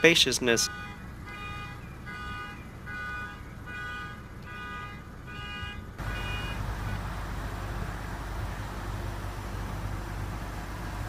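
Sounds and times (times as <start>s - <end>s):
low rumble and hiss: 0.0s - 11.0s.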